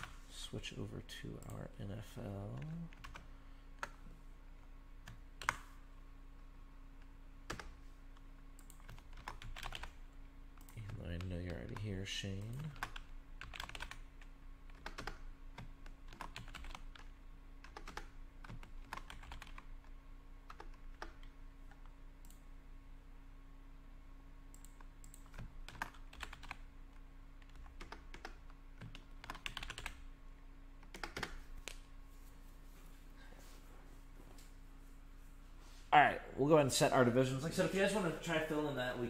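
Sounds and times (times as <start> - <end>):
typing on a keyboard: 8.6 - 10.0, 10.6 - 14.0, 14.7 - 19.7, 24.6 - 26.6, 27.4 - 30.0, 30.9 - 31.4.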